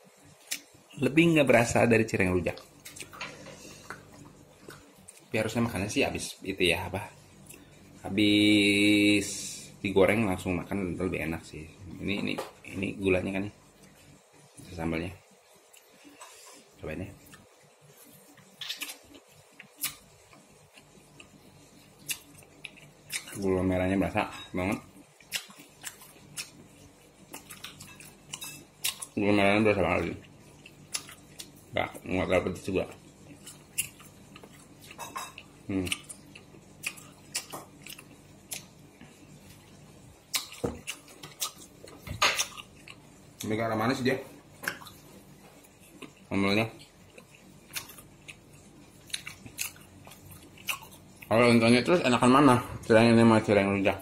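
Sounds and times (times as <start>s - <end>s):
person chewing food: 2.5s - 5.3s, 15.6s - 23.6s, 24.9s - 29.2s, 30.1s - 32.1s, 32.9s - 43.5s, 44.5s - 51.3s.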